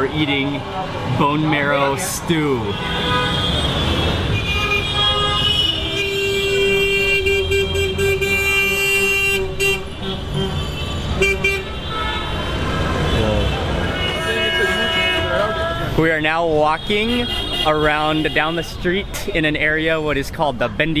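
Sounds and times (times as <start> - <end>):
street traffic: 0.0 - 21.0
vehicle horn honking: 2.6 - 16.0, 17.1 - 18.6.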